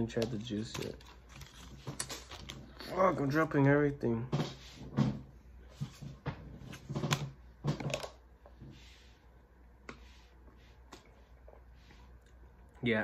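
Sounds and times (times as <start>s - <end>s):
items being handled clicking: 0.1s - 2.6s.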